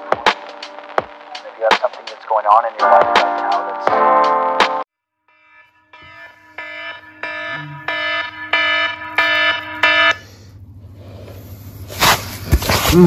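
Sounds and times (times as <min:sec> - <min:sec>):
alarm beeping: 0:05.3 - 0:10.6.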